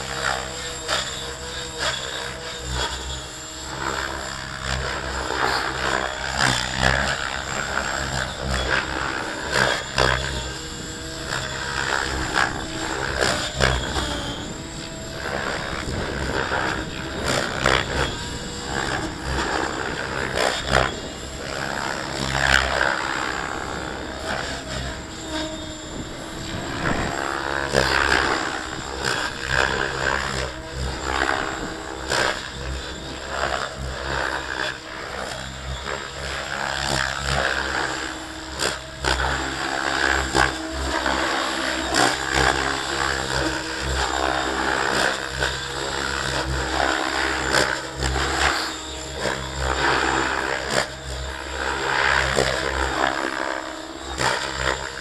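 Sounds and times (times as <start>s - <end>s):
model helicopter rotor and motor: 0.0s - 55.0s
wind buffeting microphone: 6.3s - 35.3s.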